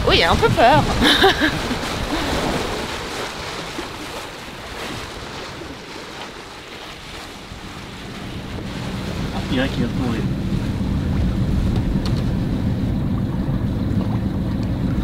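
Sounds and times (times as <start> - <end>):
wind and water rushing: 0.0 - 15.0.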